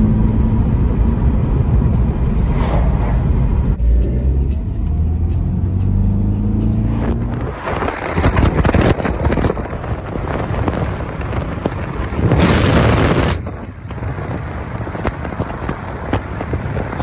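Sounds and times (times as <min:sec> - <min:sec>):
wind rushing over microphone: 0:00.6 - 0:03.8, 0:06.9 - 0:17.0
tyres on wet road: 0:04.2 - 0:17.0.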